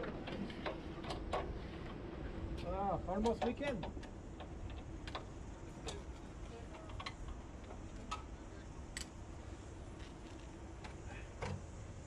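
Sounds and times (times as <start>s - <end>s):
light clicks and taps: 2.6s - 8.3s.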